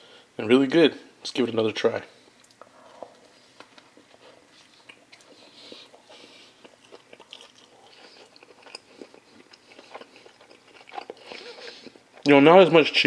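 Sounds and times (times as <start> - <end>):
person chewing food: 2.4 - 12.3.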